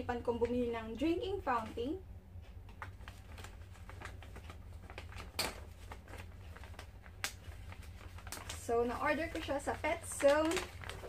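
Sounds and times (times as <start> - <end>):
plastic bag and paper rustling: 2.7 - 11.0.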